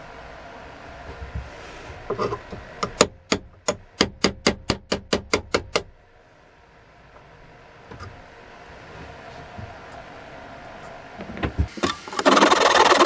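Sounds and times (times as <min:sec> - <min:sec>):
hammer tapping metal punch: 0:02.8 - 0:05.9.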